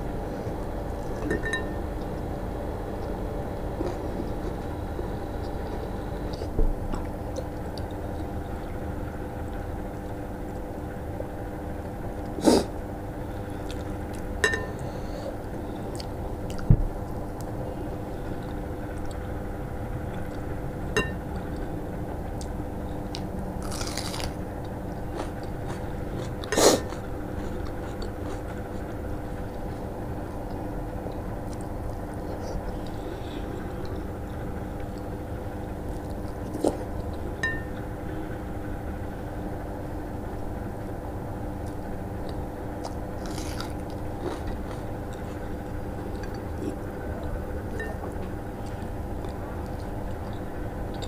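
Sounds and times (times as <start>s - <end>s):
steady hum: 0.0s - 51.0s
person chewing: 15.8s - 17.5s, 23.1s - 28.9s, 35.8s - 37.3s, 41.6s - 51.0s.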